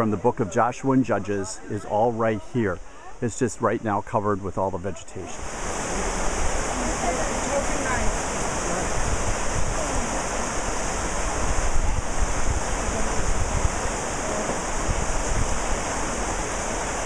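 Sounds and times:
wind buffeting microphone: 0:05.4 - 0:17.0.

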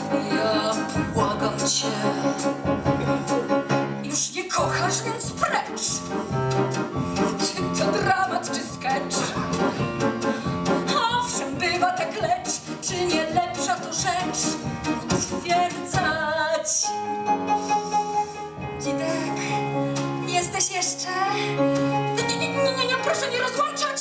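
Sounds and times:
woman singing with vibrato: 0:00.0 - 0:02.8
instrumental accompaniment: 0:00.0 - 0:24.0.

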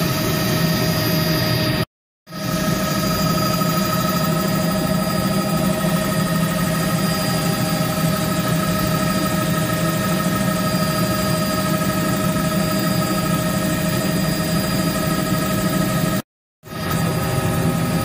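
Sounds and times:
helicopter engine and rotor drone: 0:00.0 - 0:18.0
whining tones: 0:02.4 - 0:16.1.

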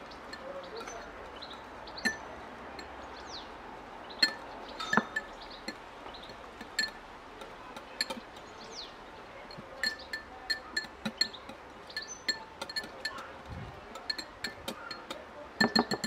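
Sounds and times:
fork clinking against ceramic bowl: 0:09.6 - 0:16.0.

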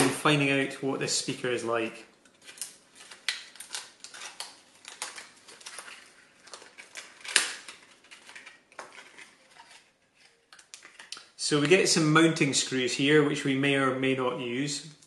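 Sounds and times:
plastic packaging crackling: 0:02.2 - 0:11.4.

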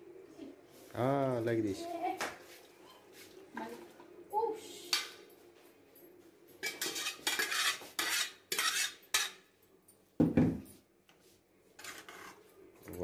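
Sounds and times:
spoon scraping in a pot: 0:06.6 - 0:09.5, 0:11.8 - 0:12.6.

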